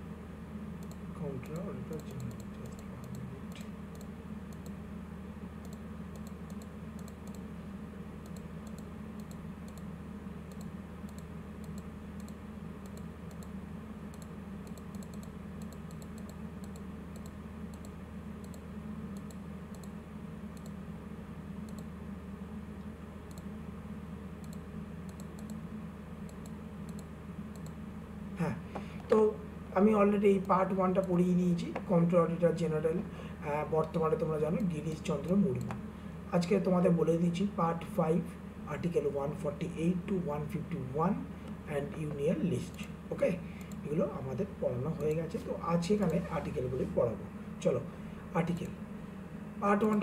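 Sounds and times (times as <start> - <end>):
steady low hum: 0.0 - 50.0
computer keys clicking: 0.8 - 4.8, 5.6 - 7.5, 8.2 - 9.9, 10.5 - 20.0, 20.6 - 20.8, 21.6 - 21.9, 23.3 - 23.5, 24.4 - 25.6, 26.3 - 27.8.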